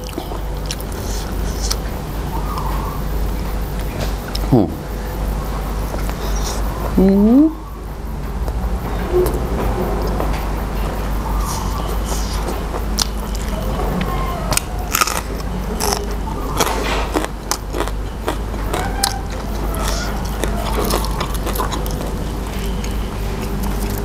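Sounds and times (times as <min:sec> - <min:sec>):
chewing crisp raw vegetables: 0:11.4 - 0:24.0.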